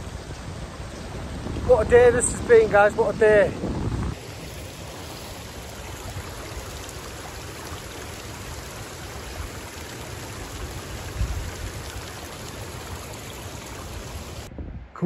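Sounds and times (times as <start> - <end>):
waterfall rushing: 4.2 - 14.5.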